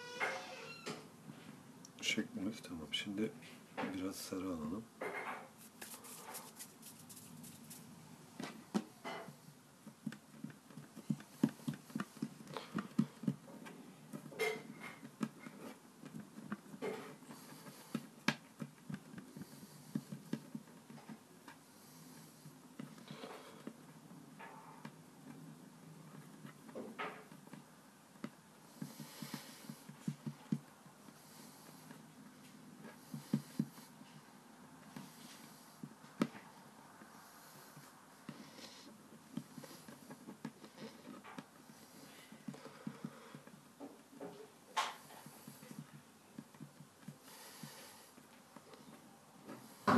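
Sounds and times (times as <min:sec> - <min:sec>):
light scrapes: 0:05.4 - 0:08.0
fingers patting dough on wood: 0:05.4 - 0:49.9.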